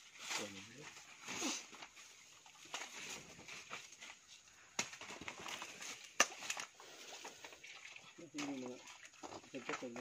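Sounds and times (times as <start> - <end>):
plant stalks and dry leaves rustling: 0.0 - 10.0
plant stalks cracking: 2.6 - 6.7.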